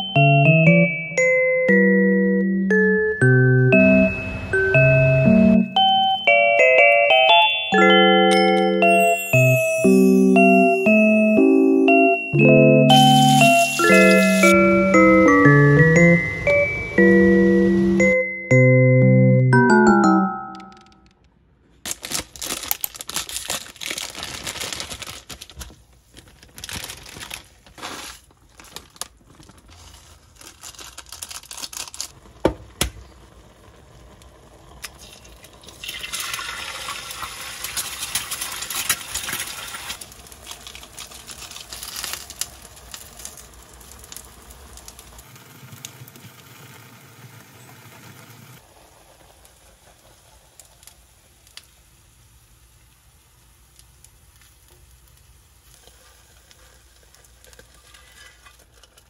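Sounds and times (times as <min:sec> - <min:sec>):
plastic packet crinkling and tearing: 0:21.8 - 0:32.4, 0:37.2 - 0:45.2.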